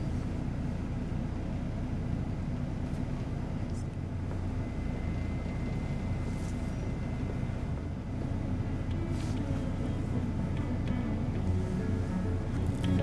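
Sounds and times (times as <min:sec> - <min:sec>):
bus engine rumble: 0:00.0 - 0:13.0
faint high whine: 0:03.7 - 0:13.0.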